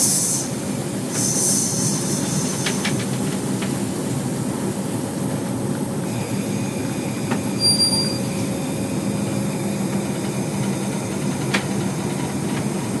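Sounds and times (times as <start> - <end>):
diesel locomotive engine drone: 0.0 - 13.0
brief high squeal: 1.2 - 2.6, 7.5 - 8.4.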